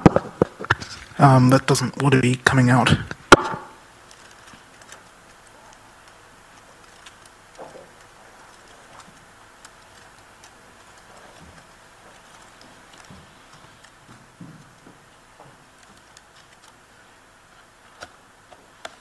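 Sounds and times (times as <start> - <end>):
laptop keys and touchpad clicking: 3.3 - 19.0.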